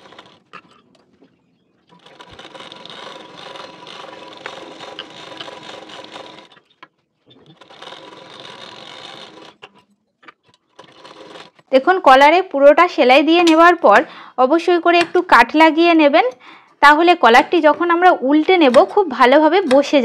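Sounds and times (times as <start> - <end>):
sewing machine stitching: 0.0 - 0.8, 1.9 - 11.8.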